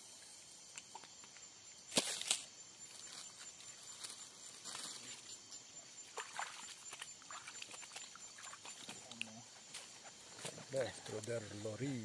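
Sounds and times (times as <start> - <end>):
insect trill: 0.0 - 12.0
soft ticks and rustling: 6.8 - 12.0.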